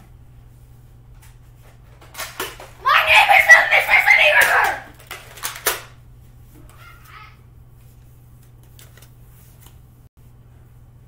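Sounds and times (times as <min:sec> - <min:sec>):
faint child's voice: 0:02.8 - 0:04.9.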